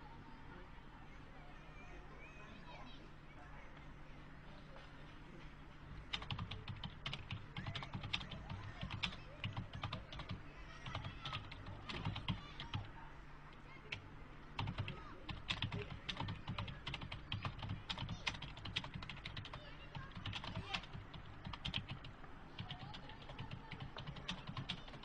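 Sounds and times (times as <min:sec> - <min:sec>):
typing on computer keyboard: 0:06.1 - 0:12.9, 0:14.6 - 0:25.0.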